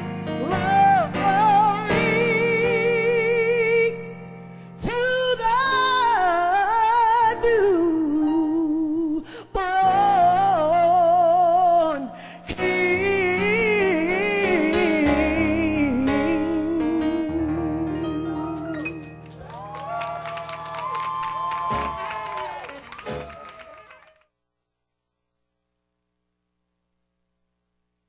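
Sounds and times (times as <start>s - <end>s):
person singing with vibrato: 0.0s - 19.2s
instrumental accompaniment: 12.6s - 23.8s.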